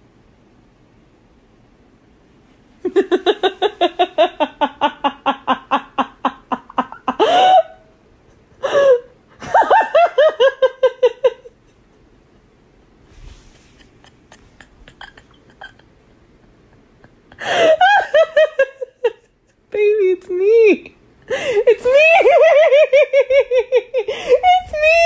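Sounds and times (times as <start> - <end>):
person laughing hard: 2.8 - 11.6, 13.7 - 19.4, 21.3 - 25.0.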